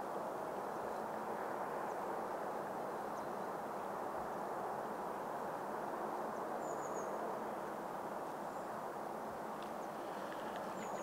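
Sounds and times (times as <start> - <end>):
outdoor background hiss: 0.0 - 11.0
faint bird chirps: 6.6 - 7.2, 9.8 - 11.0.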